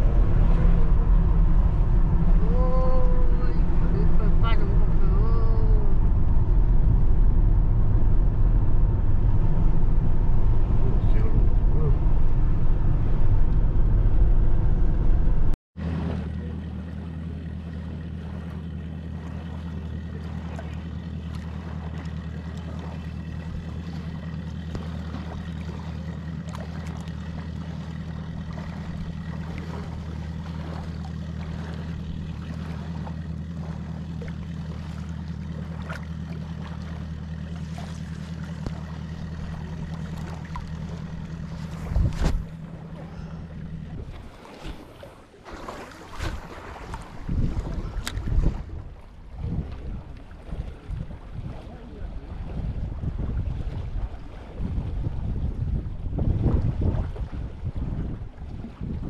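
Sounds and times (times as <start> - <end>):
rough low noise: 0.0 - 18.2
motorboat engine running: 0.0 - 59.0.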